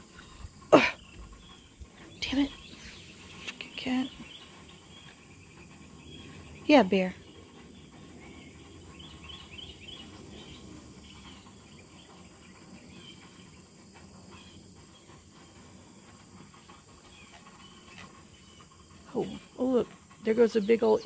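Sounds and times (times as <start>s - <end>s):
insect drone: 0.0s - 21.0s.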